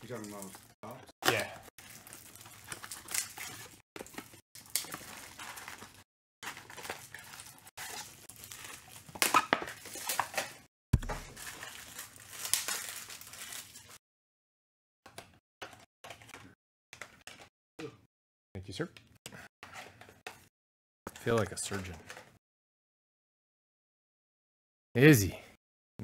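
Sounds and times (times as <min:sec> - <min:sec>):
cardboard and foil tearing: 0:00.0 - 0:14.0.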